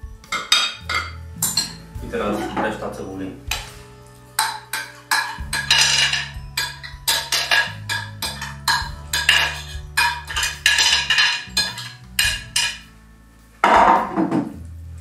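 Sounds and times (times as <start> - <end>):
metal spoon scraping glass container: 0.3 - 2.8, 3.5 - 12.9.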